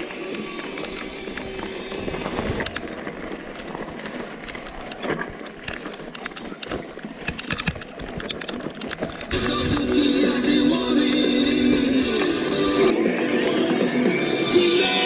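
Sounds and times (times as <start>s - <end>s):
bike clicks and rattles: 0.0s - 13.9s.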